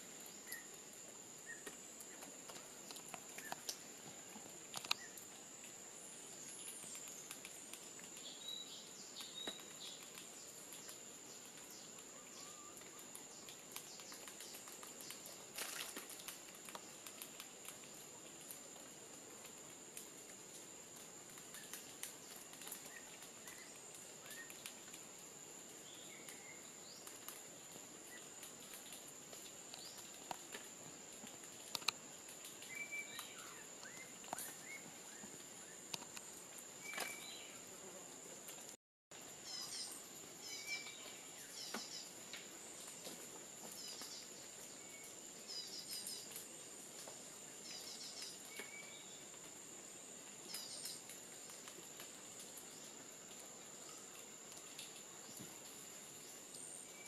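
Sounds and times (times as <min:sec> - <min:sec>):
bird calls and chirps: 0:08.2 - 0:10.2, 0:11.7 - 0:15.2, 0:32.6 - 0:35.8, 0:36.8 - 0:37.6, 0:39.4 - 0:42.1, 0:43.7 - 0:46.4, 0:47.6 - 0:49.2, 0:50.5 - 0:51.1.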